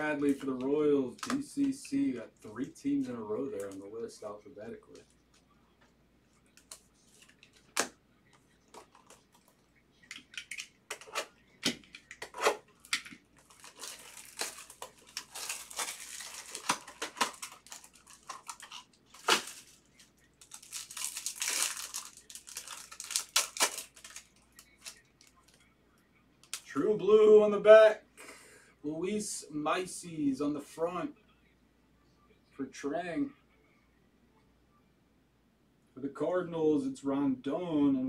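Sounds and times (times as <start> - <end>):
cards clicking in plastic sleeves: 10.1 - 19.8, 20.4 - 25.6
foil wrapper crinkling and tearing: 12.2 - 25.6.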